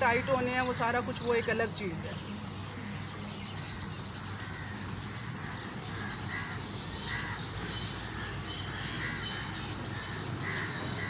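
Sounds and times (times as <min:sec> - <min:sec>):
outdoor background noise: 0:00.0 - 0:11.0
crows cawing: 0:05.4 - 0:11.0.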